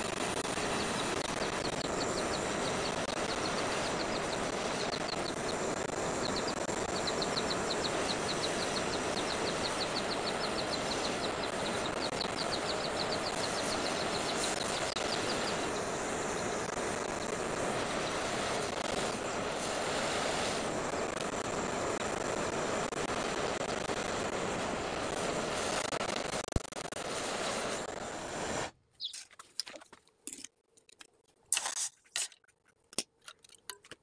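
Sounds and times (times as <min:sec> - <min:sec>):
gas torch hissing: 0:00.0 - 0:28.8
high chirps: 0:00.3 - 0:19.1, 0:29.0 - 0:29.3.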